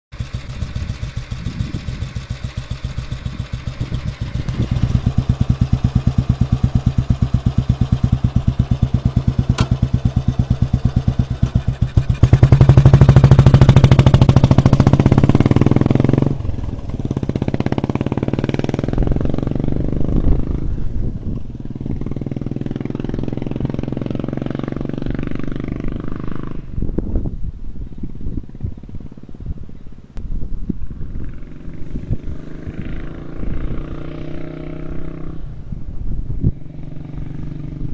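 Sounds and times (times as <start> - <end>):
motorcycle engine thumping: 0.2 - 20.6.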